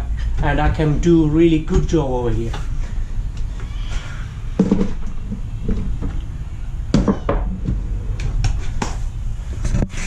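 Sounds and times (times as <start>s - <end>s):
steady low rumble: 0.0s - 3.6s
tool cabinet knocks and clatter: 4.6s - 6.1s.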